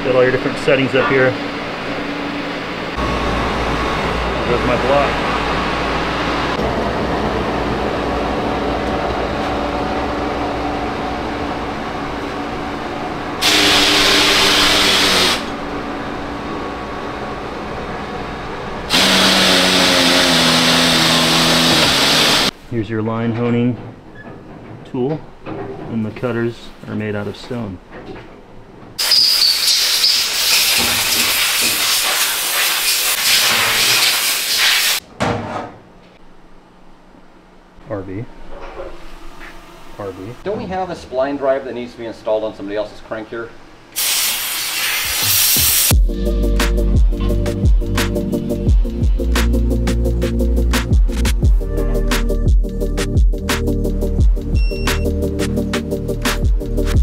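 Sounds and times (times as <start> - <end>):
machine shop hum: 0.0 - 22.7, 23.8 - 52.0
compressed air hiss: 13.4 - 15.5, 18.9 - 22.5, 29.0 - 35.0, 44.0 - 45.9
held machine tones: 54.6 - 55.2.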